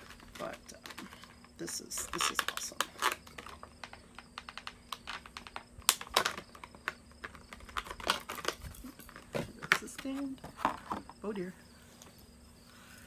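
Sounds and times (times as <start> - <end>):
plastic packaging crackling: 0.0 - 10.0.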